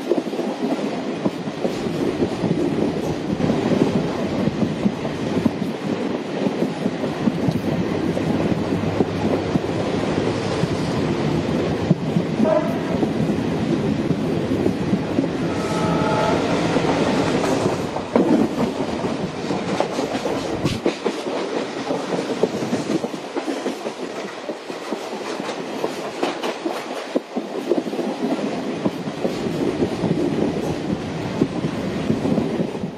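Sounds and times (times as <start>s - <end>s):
train wheels clattering on rails: 0.0s - 32.9s.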